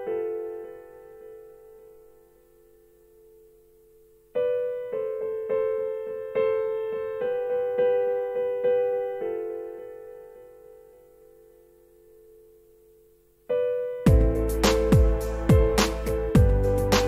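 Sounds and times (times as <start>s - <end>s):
piano chords: 0.0s - 17.0s.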